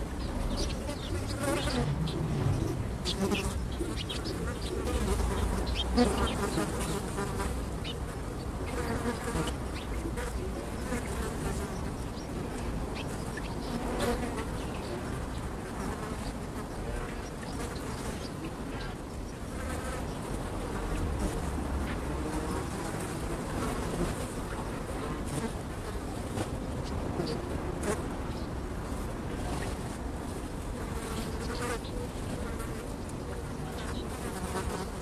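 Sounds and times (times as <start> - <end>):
blowflies buzzing: 0.0 - 11.8.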